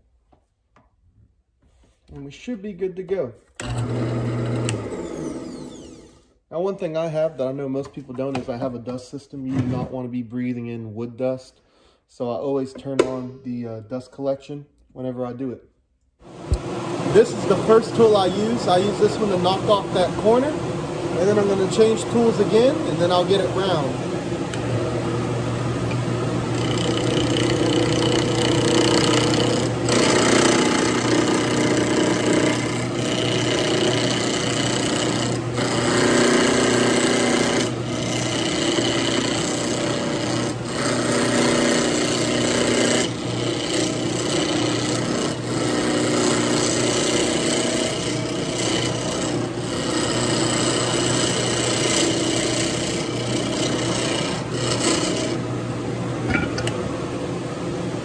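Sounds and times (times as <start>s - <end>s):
lathe motor hum: 3.6s - 6.2s, 16.3s - 57.0s
turning tool scraping wood: 24.8s - 55.5s.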